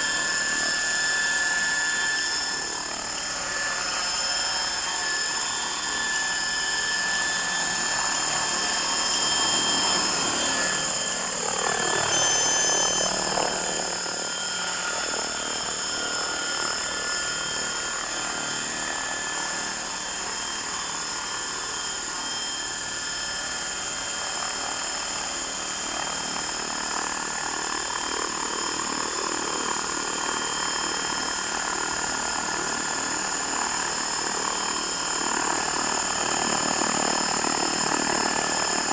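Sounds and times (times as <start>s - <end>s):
electric motor whine: 0.0s - 38.9s.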